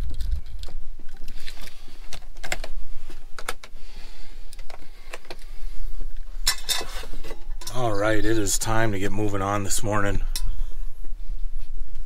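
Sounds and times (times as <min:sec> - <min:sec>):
small objects clicking and knocking: 0:00.0 - 0:03.8.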